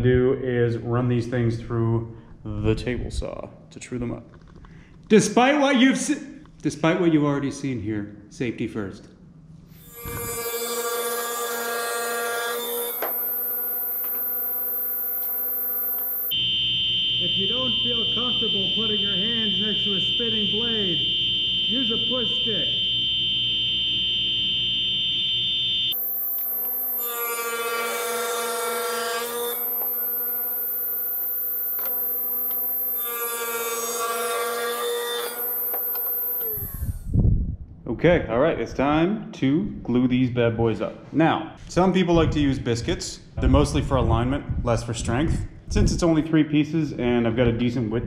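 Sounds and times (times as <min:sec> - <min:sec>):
table saw whining: 0:09.8 - 0:37.1.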